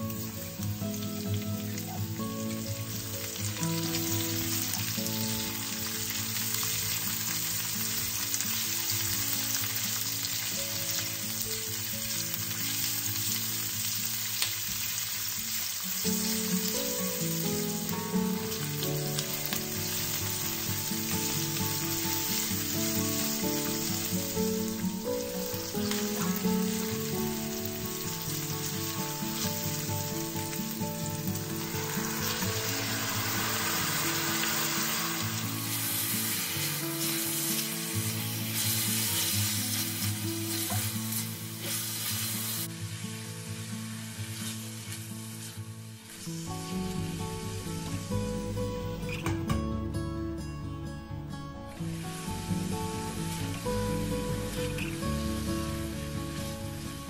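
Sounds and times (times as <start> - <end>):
onions sizzling in hot oil: 0.0 - 49.4, 51.7 - 57.0
background music: 15.9 - 42.5, 46.4 - 57.0.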